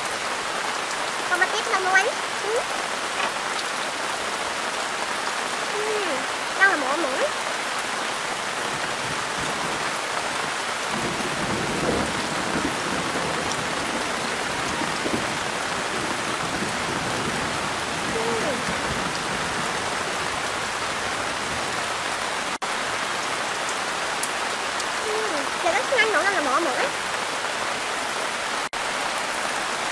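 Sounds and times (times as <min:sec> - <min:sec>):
rain hissing: 0:00.0 - 0:29.9.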